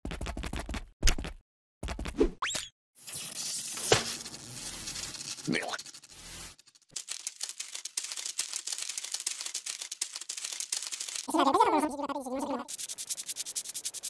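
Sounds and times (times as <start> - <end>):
rapid dense clicking and tapping: 7.0 - 11.3.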